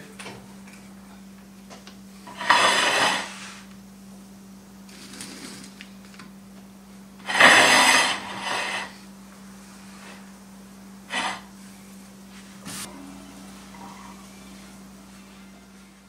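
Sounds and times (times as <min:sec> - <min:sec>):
steady low hum: 0:00.0 - 0:16.0
dishes scraping on countertop: 0:02.3 - 0:03.7, 0:07.2 - 0:09.0, 0:11.1 - 0:11.5.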